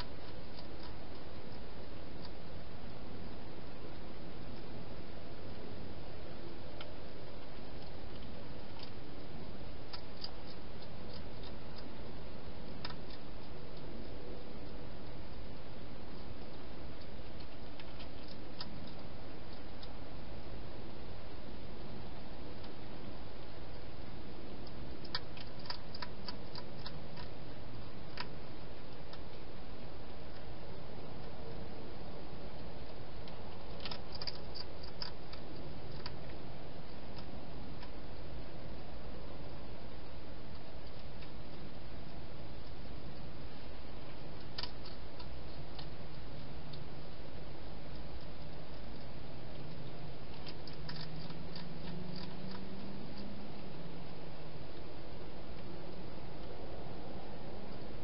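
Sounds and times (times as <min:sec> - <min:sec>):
hedgehog chewing crisp clicks: 0:00.0 - 0:03.0, 0:06.5 - 0:09.0, 0:09.8 - 0:20.0, 0:24.6 - 0:31.6, 0:32.5 - 0:38.8, 0:40.5 - 0:56.6.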